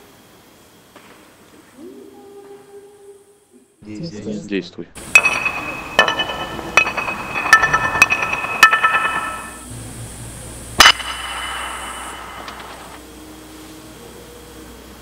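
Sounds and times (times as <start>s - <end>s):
bright ringing clinks: 5.0s - 9.7s, 10.8s - 13.0s.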